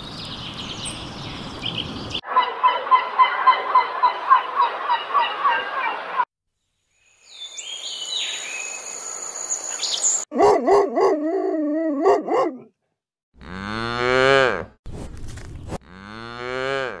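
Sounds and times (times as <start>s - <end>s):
cows mooing: 13.4s - 14.7s, 15.8s - 17.0s.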